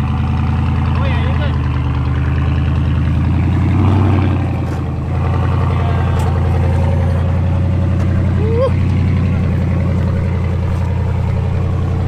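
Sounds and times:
truck engine running at low revs: 0.0s - 12.0s.

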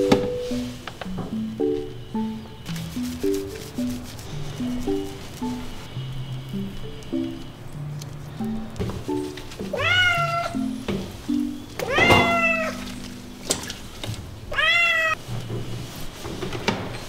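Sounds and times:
light background music: 0.0s - 14.0s
cat meowing: 9.7s - 10.7s, 11.8s - 12.9s, 14.5s - 15.2s.

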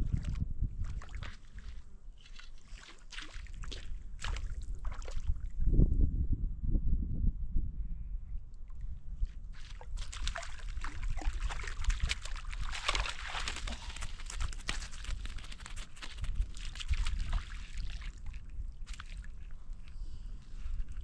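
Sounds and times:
wind rumble on microphone: 0.0s - 2.2s, 3.4s - 21.0s
water splashing and sloshing: 0.0s - 5.6s, 8.7s - 19.9s.

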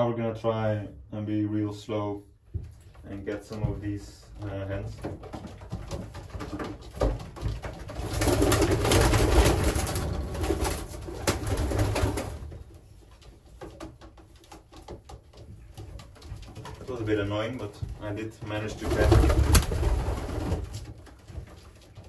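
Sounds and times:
pigeons flapping wings: 4.8s - 17.1s, 18.4s - 22.0s.

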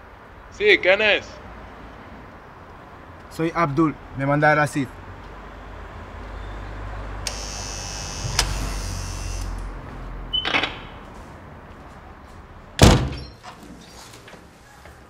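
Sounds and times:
electric door buzzer: 7.2s - 9.7s
metal door banging shut: 8.2s - 8.8s, 10.4s - 11.0s, 12.8s - 13.4s.

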